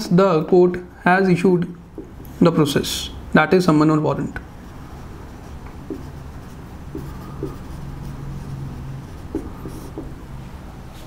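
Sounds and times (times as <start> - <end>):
marker scratching on whiteboard: 1.9 - 2.3, 4.6 - 11.0.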